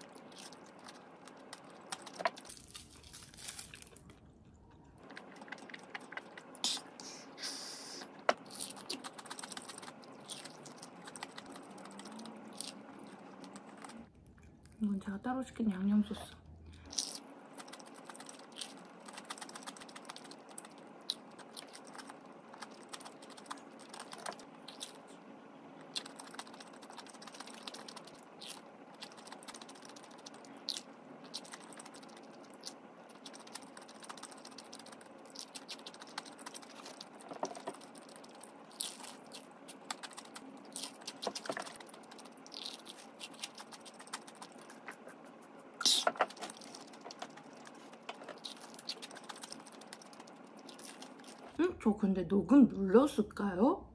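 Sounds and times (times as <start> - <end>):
chewing crispy fried chicken: 0.0 - 7.0, 8.1 - 14.8, 16.7 - 25.2, 25.8 - 51.6.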